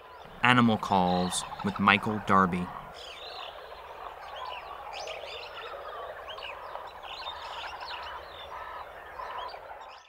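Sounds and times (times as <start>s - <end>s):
steady low background: 0.0s - 3.8s
small birds chirping and whistling: 0.0s - 10.0s.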